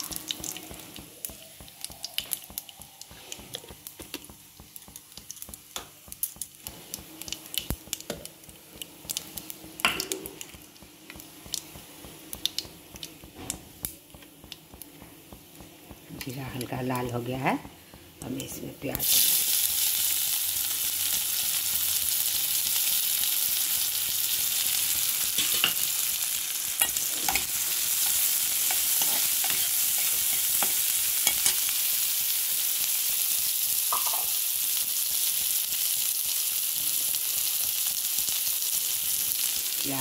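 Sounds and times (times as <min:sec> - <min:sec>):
onions sizzling in oil: 0:00.0 - 0:40.0
spatula scraping and tapping pan: 0:26.8 - 0:31.7.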